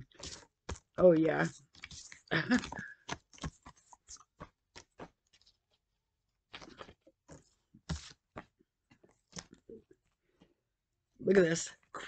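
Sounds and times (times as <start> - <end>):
cards being shuffled: 0.0 - 5.6, 6.5 - 9.6.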